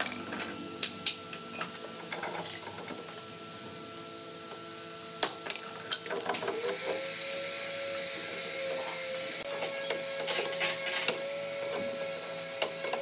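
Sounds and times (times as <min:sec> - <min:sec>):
power tool motor whine: 0:06.3 - 0:13.0.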